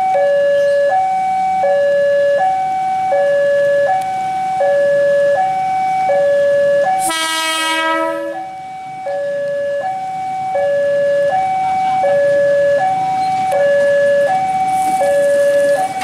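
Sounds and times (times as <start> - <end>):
two-tone warning alarm: 0.0 - 16.0
electric train horn: 7.0 - 8.6.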